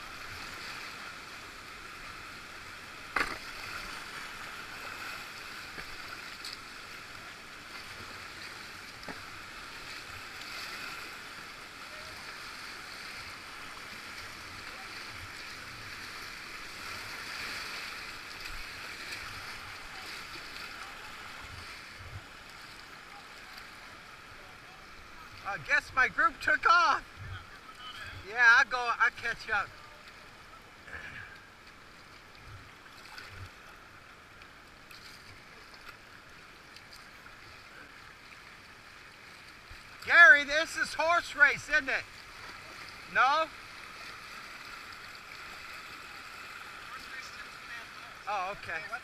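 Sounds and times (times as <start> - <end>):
whitewater river rushing: 40.0 - 49.0.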